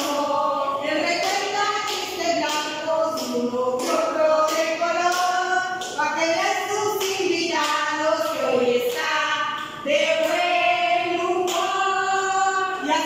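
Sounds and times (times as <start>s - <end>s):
women singing together: 0.0s - 13.0s
woman's hand claps: 1.0s - 6.0s, 6.9s - 7.8s.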